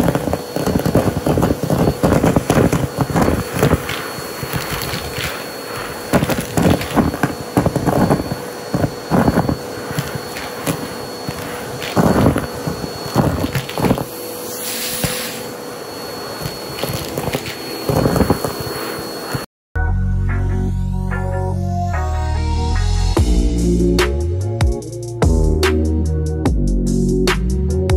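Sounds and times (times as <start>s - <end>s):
debris rattling up hose: 0.0s - 15.5s, 16.4s - 18.5s
vacuum cleaner whine: 0.0s - 19.5s.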